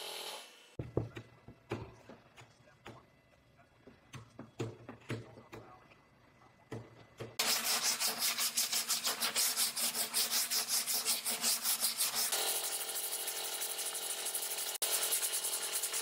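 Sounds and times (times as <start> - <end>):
sandpaper rubbing back and forth: 7.4 - 16.0.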